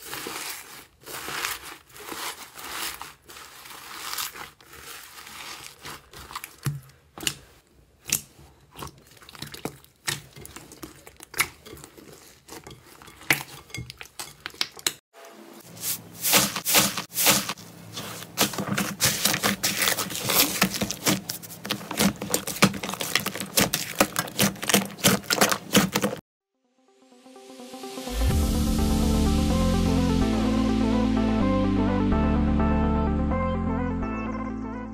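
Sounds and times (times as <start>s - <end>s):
hands squeezing sticky slime: 0.0s - 13.6s.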